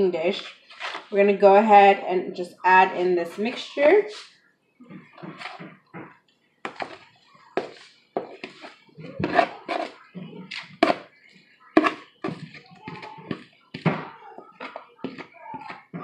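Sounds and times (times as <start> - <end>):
spatula scraping plastic bowl: 0.0 - 1.3, 5.1 - 5.8, 6.7 - 7.0, 7.6 - 16.0.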